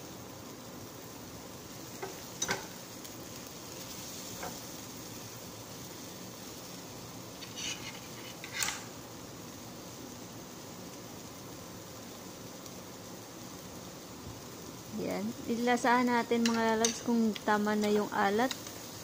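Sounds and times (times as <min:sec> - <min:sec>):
faint sizzle: 0:00.0 - 0:19.0
spatula scraping frying pan: 0:07.4 - 0:08.9.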